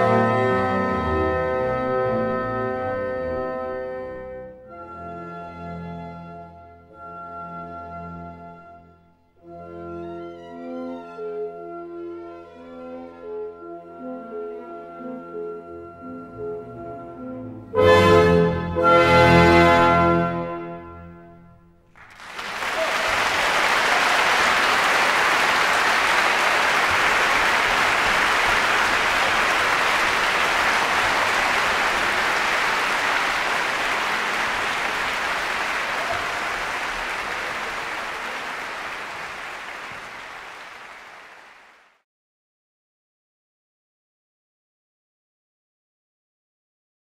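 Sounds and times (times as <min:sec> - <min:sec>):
audience applauding: 0:21.9 - 0:42.0.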